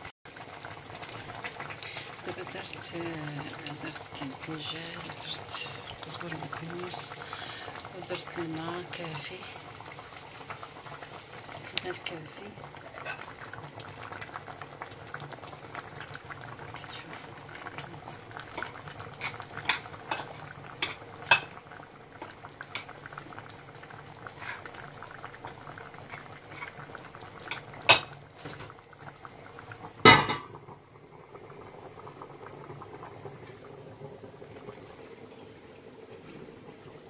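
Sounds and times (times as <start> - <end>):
broth boiling and bubbling: 0.0 - 37.0
cookware clanking: 18.6 - 21.5, 27.5 - 28.7, 30.1 - 30.5.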